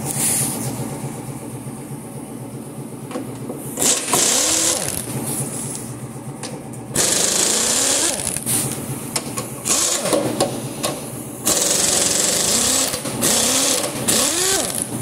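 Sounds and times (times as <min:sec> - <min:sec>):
steady machine hum: 0:00.0 - 0:15.0
impact wrench bursts: 0:03.8 - 0:05.5, 0:07.0 - 0:08.8, 0:09.6 - 0:15.0.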